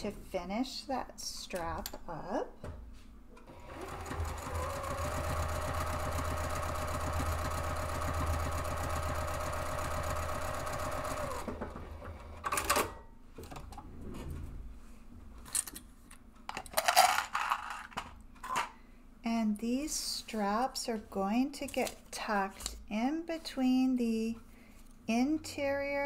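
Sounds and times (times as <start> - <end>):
sewing machine stitching: 3.5 - 12.5.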